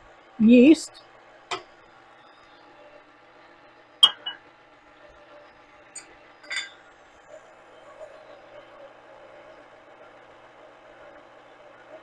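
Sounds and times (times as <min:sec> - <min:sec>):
faint steady hum: 0:00.0 - 0:12.0
glass bowls clinking: 0:04.0 - 0:04.4, 0:05.9 - 0:06.8.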